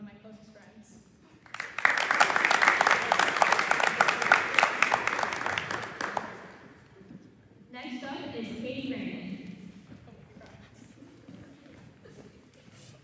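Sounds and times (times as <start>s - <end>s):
audience applauding: 1.5s - 6.9s.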